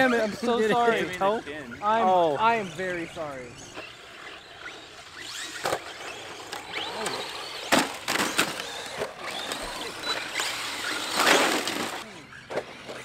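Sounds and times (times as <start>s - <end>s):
electric motors whining: 0.0s - 13.0s
plastic toy cars crashing: 3.7s - 13.0s.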